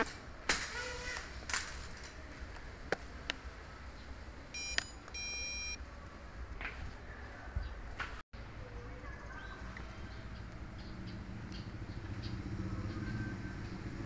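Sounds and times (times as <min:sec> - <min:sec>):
short electronic beeps: 0:04.5 - 0:05.8.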